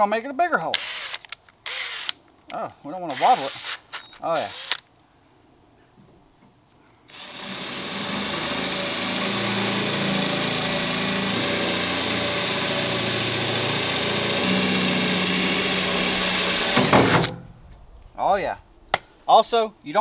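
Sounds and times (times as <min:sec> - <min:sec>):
cordless drill boring sheet metal: 0:07.1 - 0:17.3.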